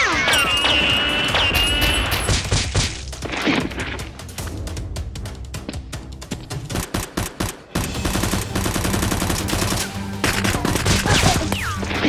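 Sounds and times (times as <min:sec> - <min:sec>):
background music: 0:00.0 - 0:12.0
rapid automatic gunfire: 0:06.7 - 0:11.4
gunshots: 0:06.7 - 0:12.0.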